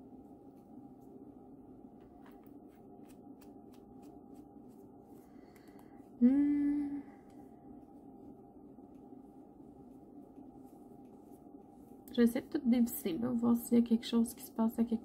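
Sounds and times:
woman humming hmm: 0:06.2 - 0:07.4.

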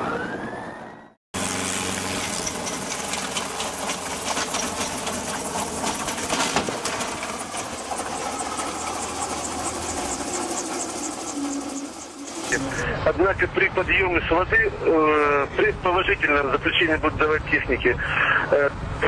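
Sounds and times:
helicopter engine and rotor: 0:01.4 - 0:12.9.

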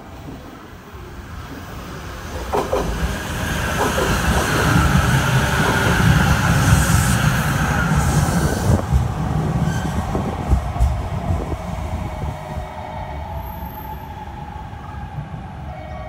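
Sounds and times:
train wheels rumbling on rails: 0:00.0 - 0:15.7
clacks over rail joints: 0:02.3 - 0:03.1.

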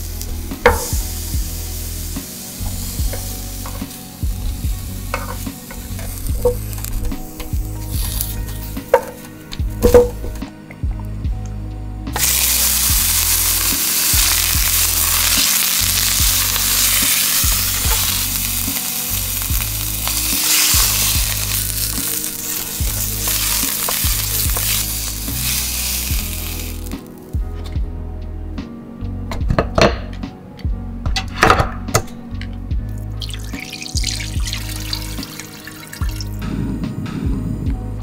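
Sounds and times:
meat sizzling in a pan: 0:00.0 - 0:09.2, 0:12.2 - 0:27.2, 0:33.2 - 0:36.4
low background music: 0:00.0 - 0:38.0.

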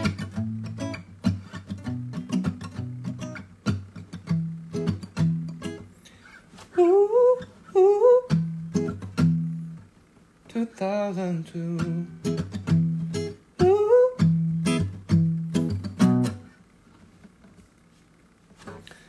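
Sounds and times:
fingerstyle acoustic guitar: 0:00.0 - 0:09.9, 0:10.9 - 0:16.6
person humming: 0:06.7 - 0:08.5, 0:13.6 - 0:14.4.

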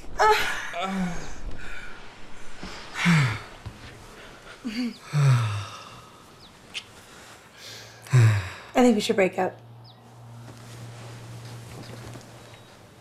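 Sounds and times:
heavy breathing: 0:00.4 - 0:06.4, 0:07.0 - 0:08.8.

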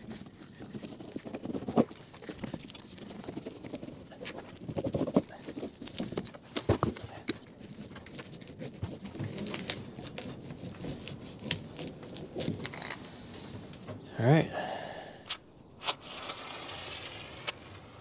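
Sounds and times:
plastic wrap crinkling: 0:01.1 - 0:13.9.

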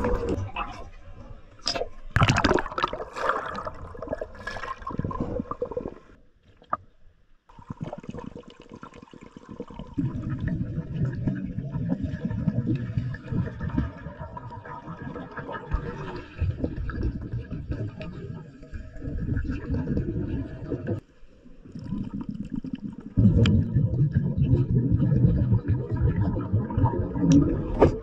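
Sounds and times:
muffled underwater rumble: 0:00.0 - 0:02.0
water splashing and gurgling: 0:01.6 - 0:06.8, 0:07.5 - 0:21.0, 0:21.6 - 0:28.0.

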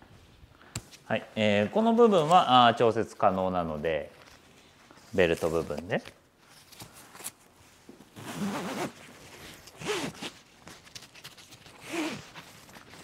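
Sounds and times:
strap pulled through buckle: 0:08.1 - 0:13.0.

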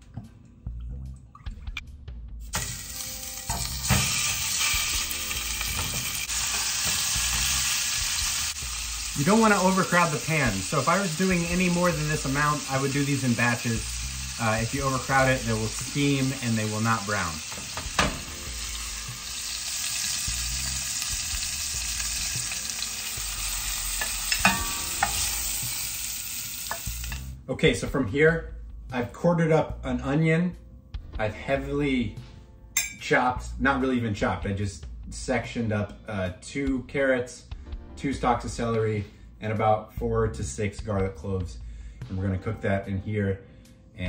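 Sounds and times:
meat sizzling in hot oil: 0:02.5 - 0:27.4
metal tongs clinking on pot: 0:24.0 - 0:25.4, 0:32.8 - 0:33.0.

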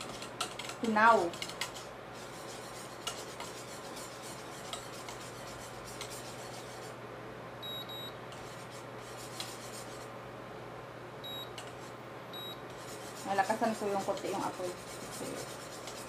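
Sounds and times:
whisk scraping a metal pot: 0:00.0 - 0:06.9, 0:08.3 - 0:10.1, 0:12.7 - 0:16.0
steady low hum: 0:00.0 - 0:16.0
short high beeps: 0:07.6 - 0:08.1, 0:11.2 - 0:11.5, 0:12.4 - 0:12.6.

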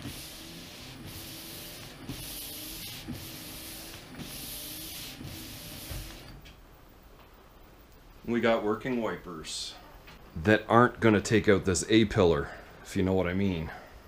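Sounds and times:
faint wiper motor hum: 0:00.0 - 0:06.4.

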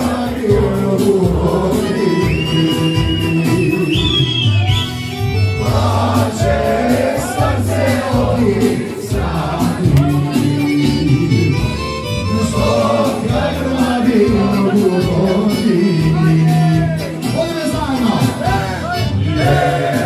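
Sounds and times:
loud music with singing: 0:00.0 - 0:20.0
steady bass line: 0:00.0 - 0:20.0.

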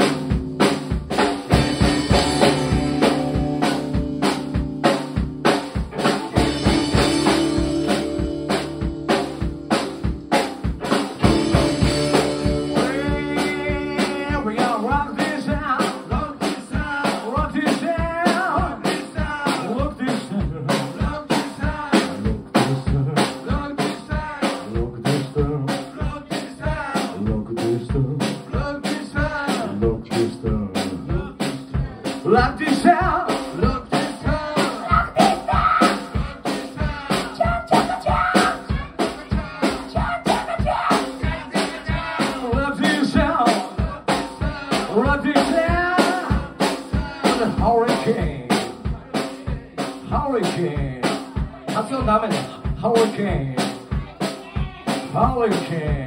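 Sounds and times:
upright double bass: 0:00.0 - 0:15.7, 0:21.6 - 0:25.8, 0:26.7 - 0:34.6, 0:41.2 - 0:49.2
electric guitars: 0:00.0 - 0:16.2
drums steady beat: 0:00.0 - 0:56.0
lead vocal singing: 0:05.7 - 0:56.0.

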